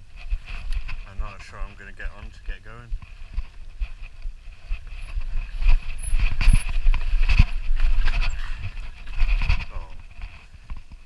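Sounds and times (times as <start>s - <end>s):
bike rattling over loose rock: 0.0s - 11.0s.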